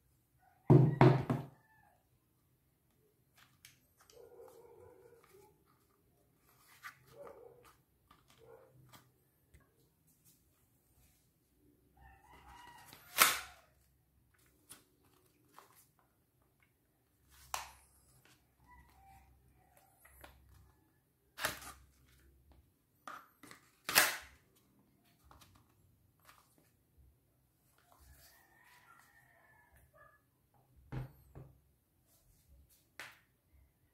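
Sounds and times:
plastic holster snapping: 0:13.1 - 0:13.5, 0:23.0 - 0:24.4.

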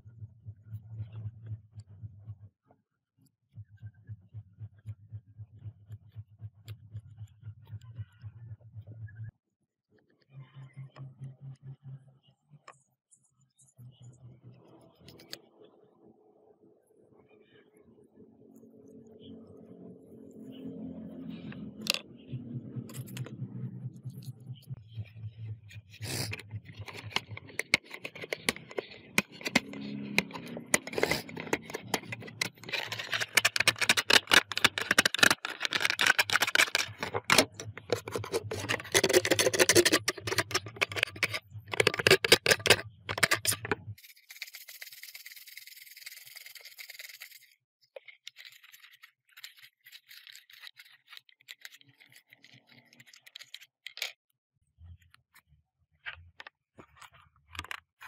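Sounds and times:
hard parts scraping and rattling: 0:25.9 - 0:43.8.

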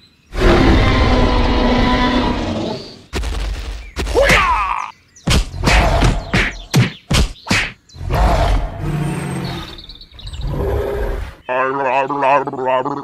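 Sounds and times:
sharp whacks: 0:05.3 - 0:07.8.

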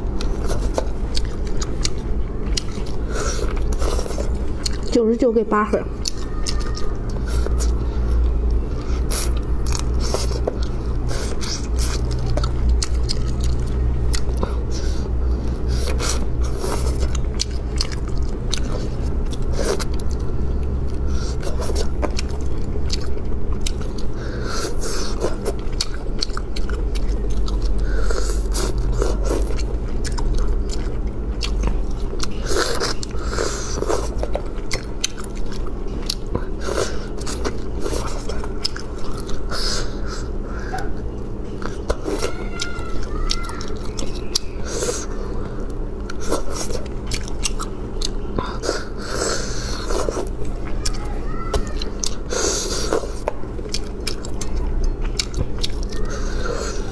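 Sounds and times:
chewing and lip-smacking: 0:00.0 - 0:56.9
steady low hum: 0:00.0 - 0:56.9.

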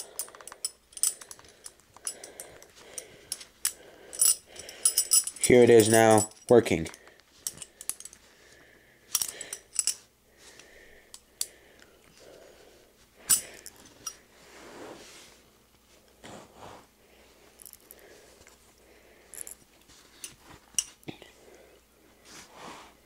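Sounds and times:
metal nails clinking together: 0:00.0 - 0:08.2, 0:09.1 - 0:10.0, 0:13.2 - 0:14.2, 0:19.3 - 0:21.0
soft handling rustle: 0:11.8 - 0:21.4.

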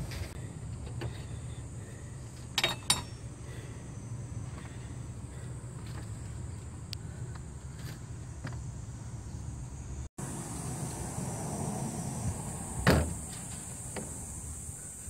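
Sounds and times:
steady background hiss: 0:07.9 - 0:15.0.

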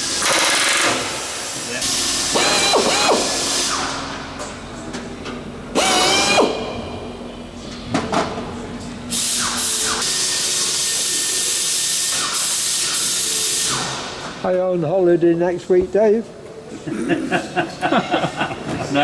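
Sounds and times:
power tool whirring: 0:00.0 - 0:04.0, 0:05.7 - 0:06.8.

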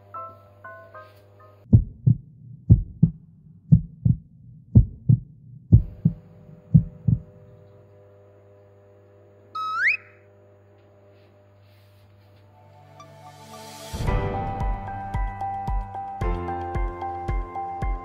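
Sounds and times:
heartbeat thumps: 0:01.7 - 0:07.3
tone sliding up in pitch: 0:09.6 - 0:10.2.

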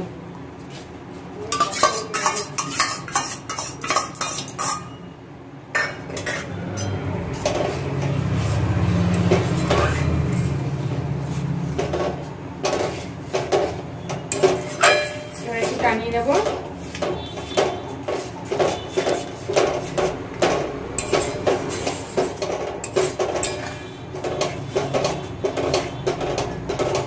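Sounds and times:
spatula scraping steel pan: 0:01.5 - 0:05.1, 0:05.8 - 0:27.0.

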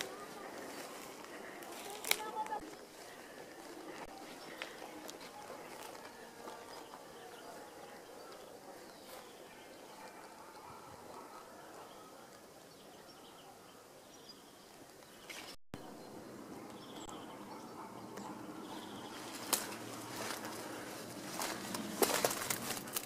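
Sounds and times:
rustling: 0:19.1 - 0:23.0.

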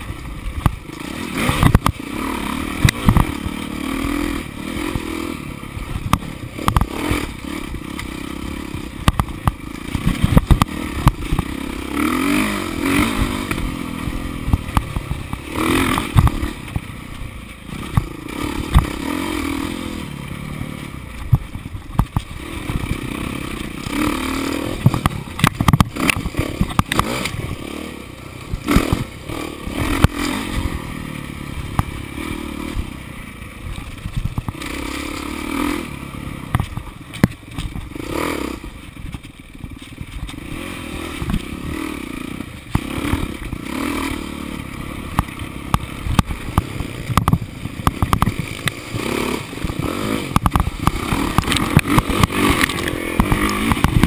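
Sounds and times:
dirt bike engine revving: 0:00.0 - 0:54.0
bike clattering over bumps: 0:05.8 - 0:19.2, 0:21.0 - 0:27.6, 0:33.6 - 0:35.4, 0:36.4 - 0:41.7, 0:45.0 - 0:54.0.

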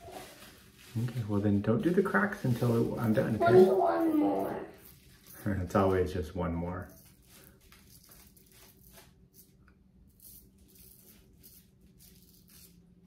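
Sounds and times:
razor scraping stubble: 0:06.9 - 0:12.8.

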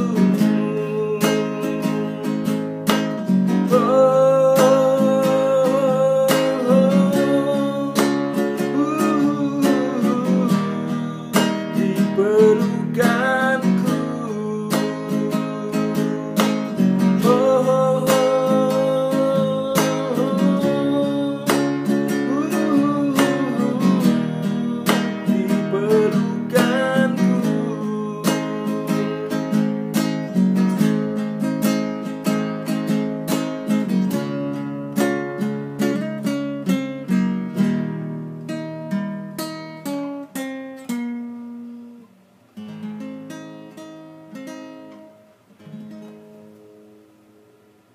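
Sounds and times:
man singing: 0:00.0 - 0:30.9
acoustic guitar chords: 0:00.0 - 0:47.9.

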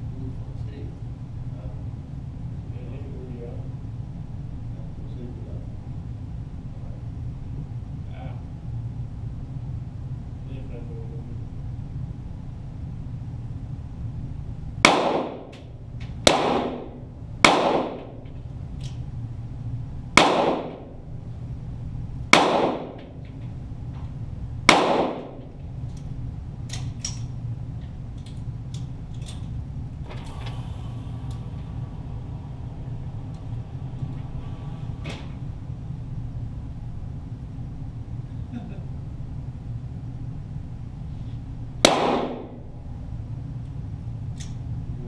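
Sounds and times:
steady low hum: 0:00.0 - 0:45.0
pistol shots with ringing echo: 0:14.8 - 0:18.2, 0:20.2 - 0:21.0, 0:22.3 - 0:23.2, 0:24.6 - 0:25.5, 0:41.8 - 0:42.7.

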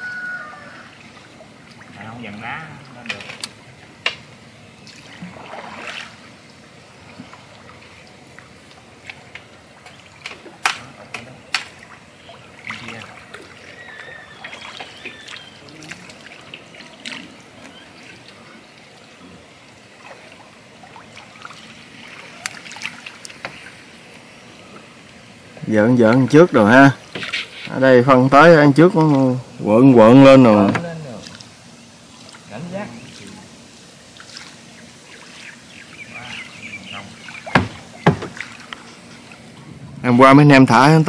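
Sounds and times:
water trickling and splashing: 0:00.0 - 0:41.0
sharp knocks on wooden boat: 0:30.7 - 0:30.9, 0:37.4 - 0:38.5.

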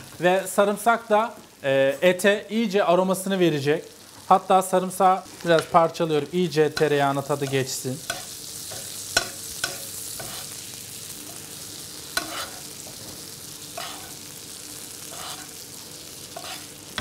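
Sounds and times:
steaks sizzling in frying pan: 0:00.0 - 0:01.9, 0:02.6 - 0:17.0
metal spoon scraping a pan: 0:06.8 - 0:14.3, 0:14.9 - 0:17.0.

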